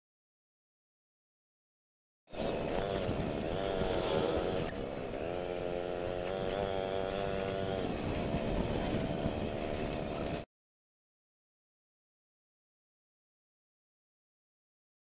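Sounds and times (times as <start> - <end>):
motor scooter engines humming: 2.3 - 10.4.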